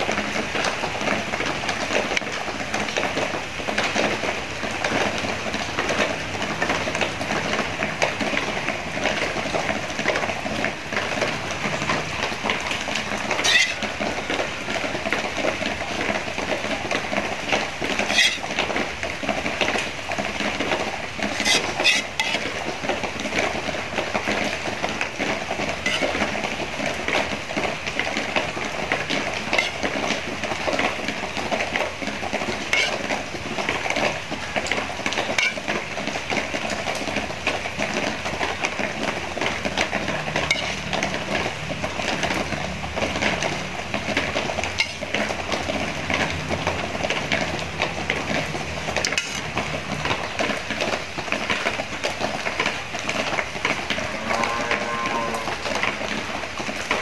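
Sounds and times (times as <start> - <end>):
utensils clinking on dishes: 13.3 - 14.0, 18.0 - 18.6, 21.2 - 22.6, 25.8 - 26.4, 29.4 - 30.1, 32.7 - 33.1, 34.7 - 35.8, 40.4 - 41.0, 44.7 - 45.3, 49.0 - 49.6.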